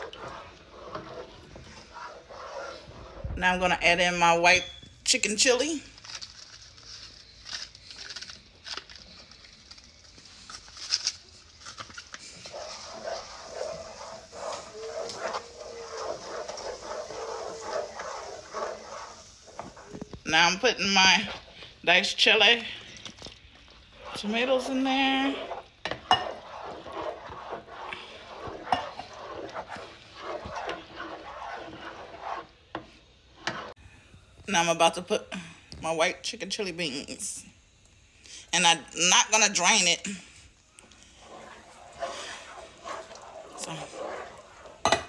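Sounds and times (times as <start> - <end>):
spatula scraping a pan: 0.0 - 5.4, 10.5 - 22.6, 23.6 - 33.8, 40.8 - 45.0
seasoning packet rustling: 5.9 - 12.8.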